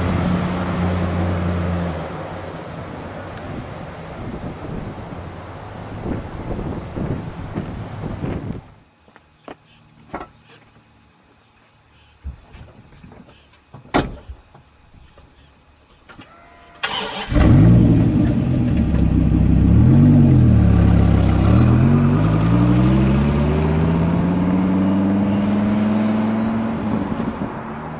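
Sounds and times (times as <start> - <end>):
car accelerating: 16.8 - 27.9
car engine starting and revving: 16.8 - 27.9.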